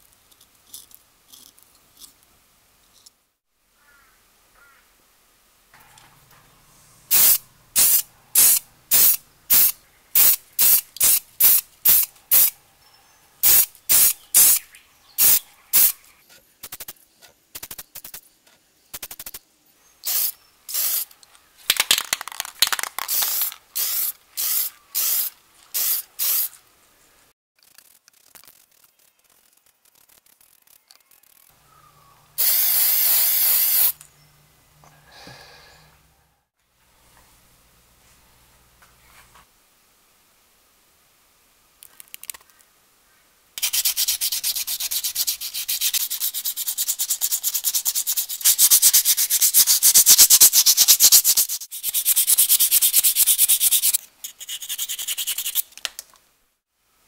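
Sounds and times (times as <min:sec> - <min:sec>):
spray paint can hissing: 0:07.1 - 0:12.6, 0:13.4 - 0:14.6, 0:15.2 - 0:16.0, 0:19.0 - 0:19.4, 0:20.0 - 0:21.1, 0:21.7 - 0:26.6, 0:27.6 - 0:31.5, 0:32.4 - 0:34.0, 0:43.6 - 0:55.7.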